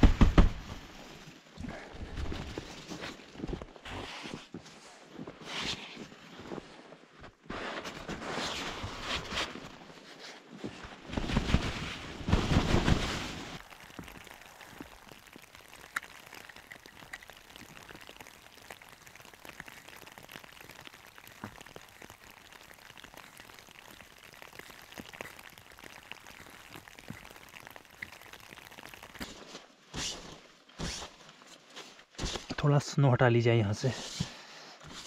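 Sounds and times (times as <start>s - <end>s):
shovel scraping snow: 3.8s - 4.5s, 29.9s - 31.2s, 31.8s - 32.5s
shovel crunching snow: 29.2s - 32.6s.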